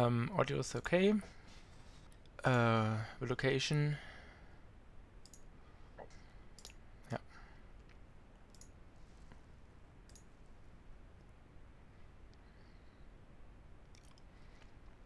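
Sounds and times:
computer mouse clicking: 5.2 - 5.5, 7.9 - 8.8, 10.0 - 10.4.

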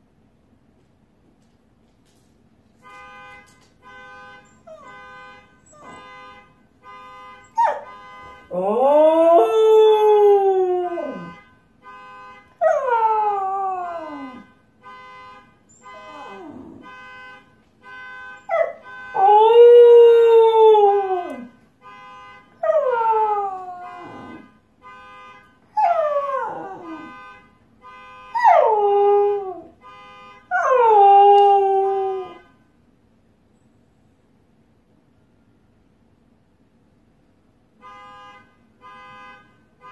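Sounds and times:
car alarm pulsing tones: 3.0 - 32.5.

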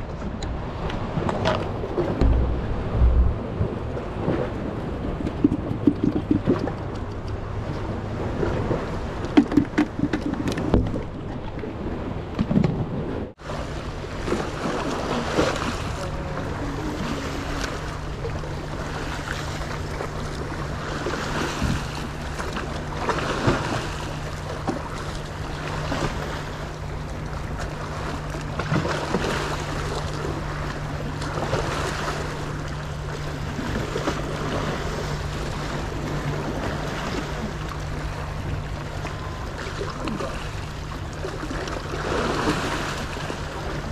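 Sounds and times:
sea waves washing over rocks: 0.0 - 7.0, 7.7 - 43.9
wind buffeting microphone: 0.0 - 13.4.

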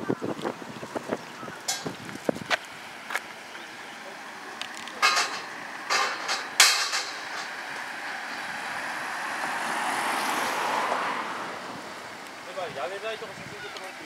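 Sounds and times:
car passing: 2.8 - 14.0.

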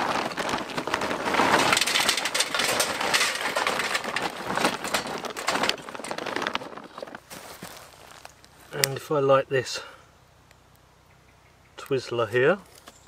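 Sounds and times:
charcoal clattering into metal: 0.0 - 7.6.

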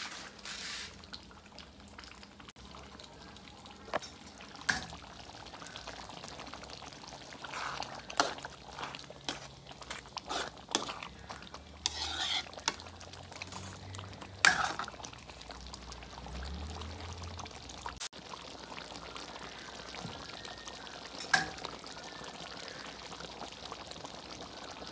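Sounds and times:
wet sloshing of stew: 0.3 - 24.4
spatula scraping and knocking pan: 7.5 - 12.9, 14.4 - 14.9.

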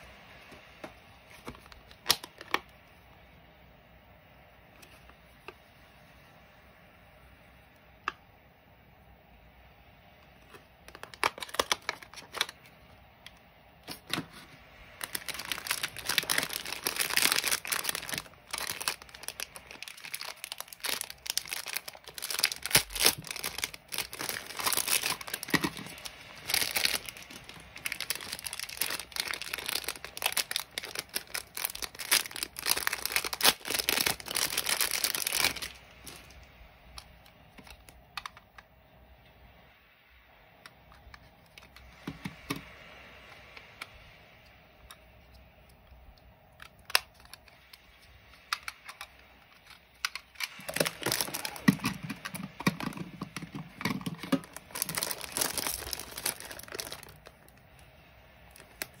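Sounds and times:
plastic crackling and tearing: 0.4 - 2.7, 10.4 - 38.6, 46.5 - 57.8, 58.4 - 59.0.

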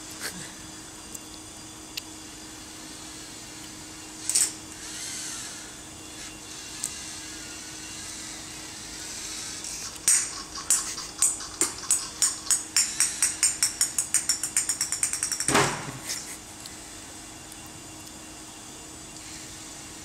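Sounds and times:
small ball bouncing on hard floor: 10.0 - 15.9.

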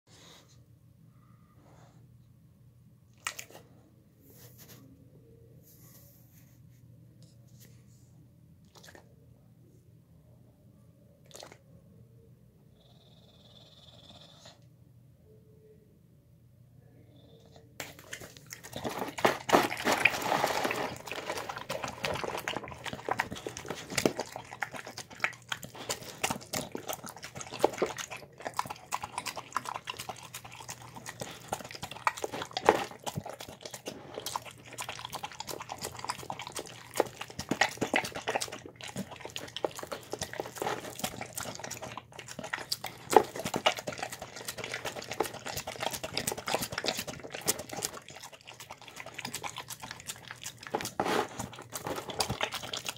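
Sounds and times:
dog chewing wet food: 17.8 - 52.9.

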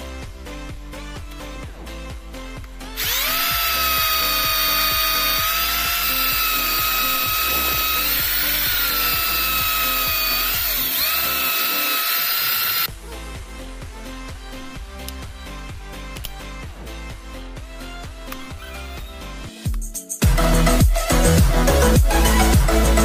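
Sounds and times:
drill boring into wood: 3.0 - 12.9.

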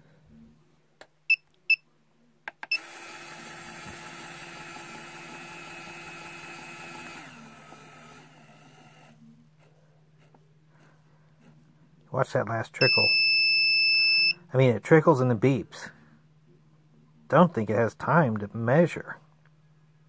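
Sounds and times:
powder dispenser motor whirring: 2.6 - 9.2
keypad beeps: 12.8 - 14.4.

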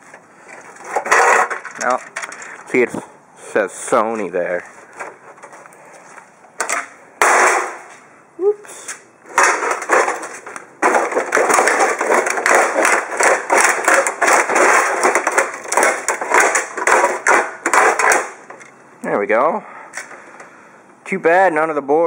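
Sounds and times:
foot stomping on plastic casing: 9.3 - 18.6.

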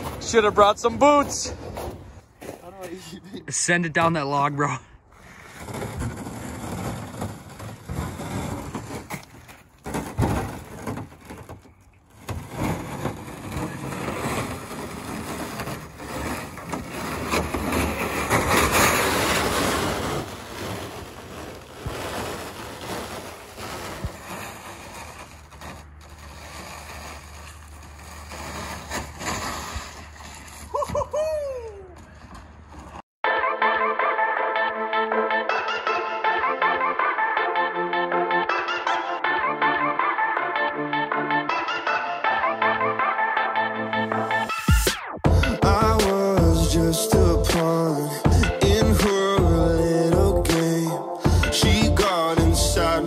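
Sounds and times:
kayak hull scraping over snow: 0.0 - 2.0, 5.1 - 31.0
footsteps in snow: 13.2 - 30.8.

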